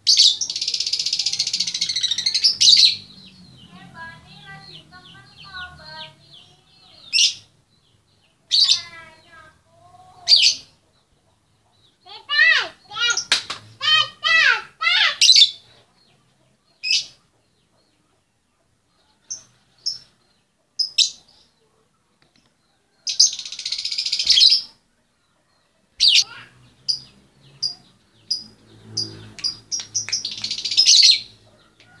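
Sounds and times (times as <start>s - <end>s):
bird shrill chirps: 0.0s - 7.5s, 8.5s - 9.5s, 22.8s - 24.8s, 26.0s - 31.4s
bird rapid chattering: 26.0s - 31.4s.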